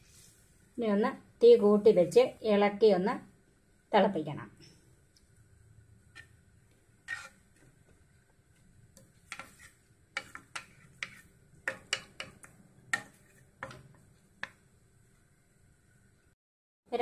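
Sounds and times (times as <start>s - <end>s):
wooden spatula scraping frying pan: 6.1s - 6.4s, 7.0s - 14.6s.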